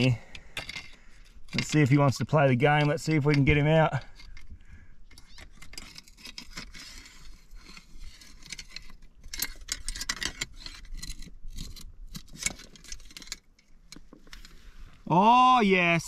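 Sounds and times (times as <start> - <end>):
metal hook scraping rock: 0.0 - 14.8.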